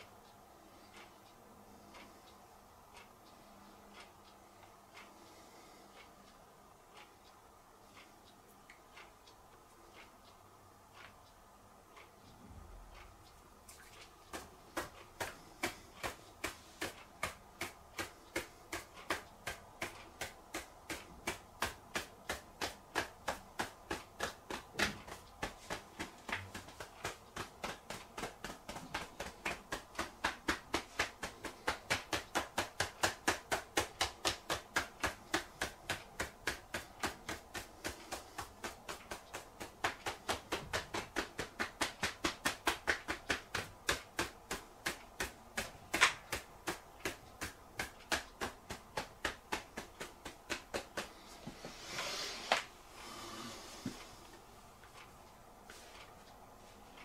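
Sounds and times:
fingertips tapping on scalp: 0:13.0 - 0:51.6.

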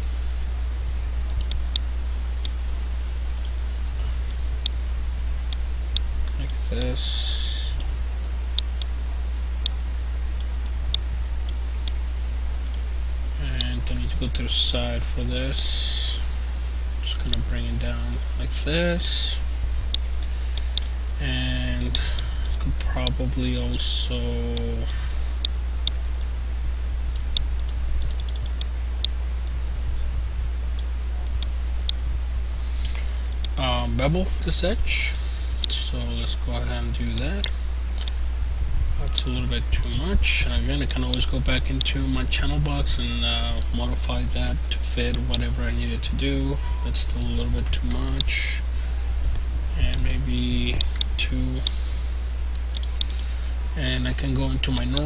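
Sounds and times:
low electrical hum: 0:00.0 - 0:55.0
computer mouse clicking: 0:27.2 - 0:29.6, 0:52.6 - 0:53.3.

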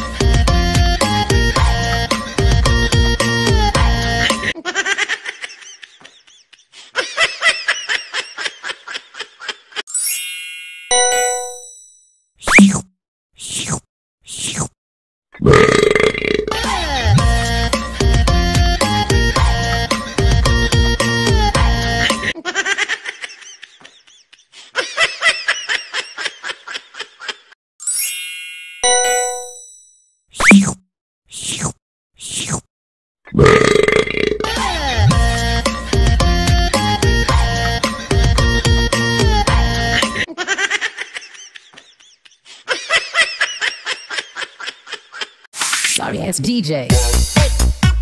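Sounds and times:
cartoon child giggling: 0:04.5 - 0:09.8, 0:16.4 - 0:17.2, 0:21.8 - 0:27.6, 0:40.0 - 0:45.5
twinkling chime run: 0:09.9 - 0:12.2, 0:27.8 - 0:30.2
ringing ding: 0:10.0 - 0:12.2, 0:27.9 - 0:30.2
high-pitched cartoon giggle: 0:16.5 - 0:17.2.

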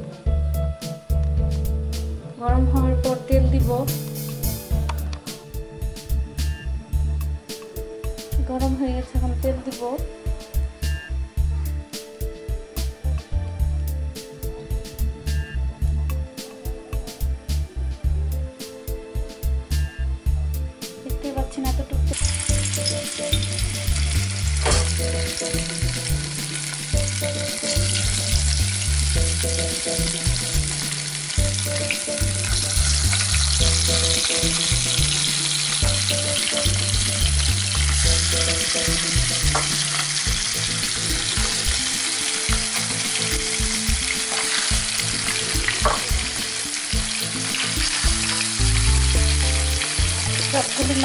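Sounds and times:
quiet background music: 0:00.0 - 0:51.0
fish sizzling in hot oil: 0:22.1 - 0:51.0.

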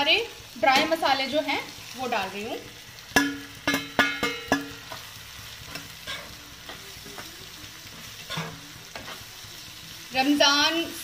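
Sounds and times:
light frying sizzle: 0:00.0 - 0:11.0
metal spoon clanking on frying pan: 0:03.1 - 0:07.3, 0:08.2 - 0:09.2.

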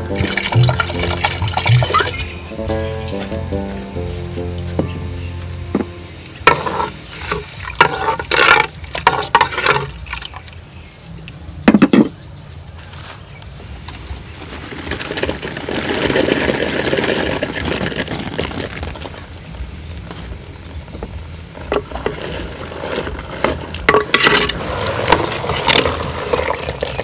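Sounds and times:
chillies splashing into water: 0:00.0 - 0:02.3.

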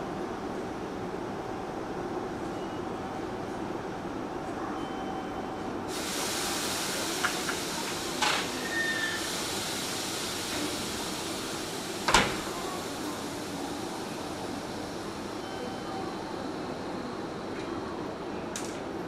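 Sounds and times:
train air hiss: 0:05.9 - 0:17.4.

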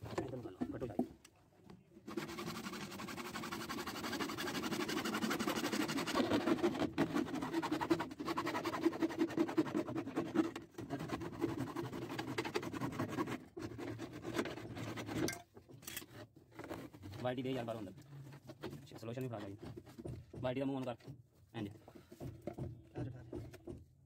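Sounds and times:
hacksaw cutting plastic pipe: 0:02.1 - 0:21.2.

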